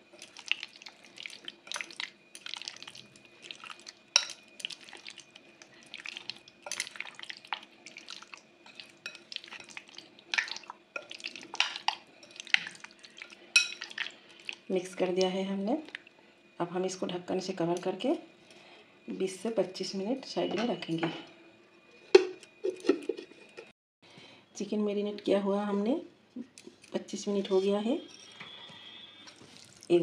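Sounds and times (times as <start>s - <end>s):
wet squelches of stirring: 0.0s - 16.3s, 26.4s - 30.0s.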